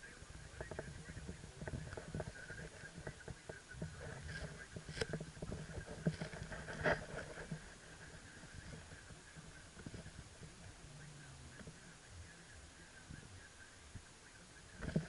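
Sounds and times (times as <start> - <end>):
car low hum: 0.0 - 15.0
small clicks and knocks: 0.5 - 9.0, 14.8 - 15.0.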